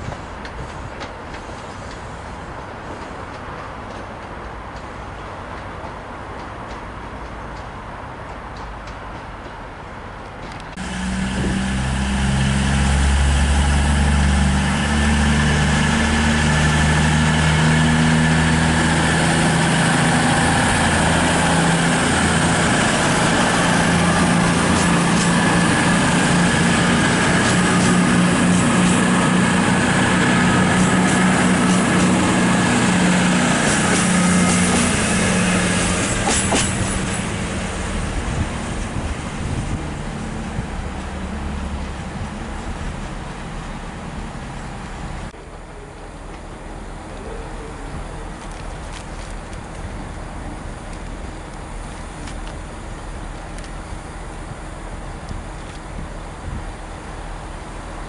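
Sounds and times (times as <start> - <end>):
train wheels clicking over rail joints: 0.0 - 44.6
diesel train engine droning: 9.5 - 58.0.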